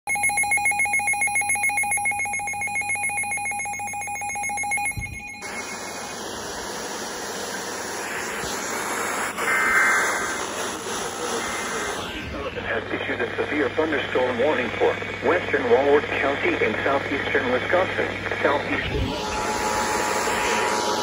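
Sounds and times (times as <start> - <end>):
pulsing two-pitch alarm tone: 0.1 - 6.2, 9.3 - 10.6, 18.8 - 21.0.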